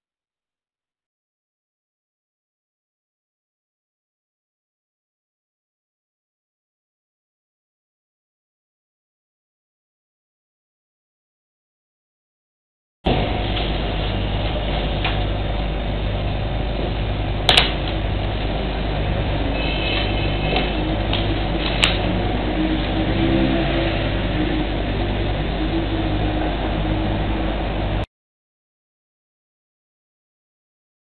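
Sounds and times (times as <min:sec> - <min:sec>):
low electrical hum: 0:13.1 - 0:28.1.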